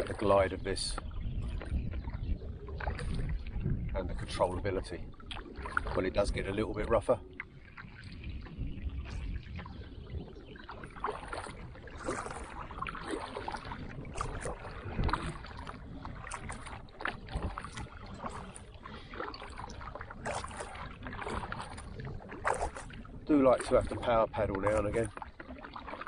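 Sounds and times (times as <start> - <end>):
kayak paddle splashing: 0.0 - 26.0
water washing along hull: 0.0 - 26.0.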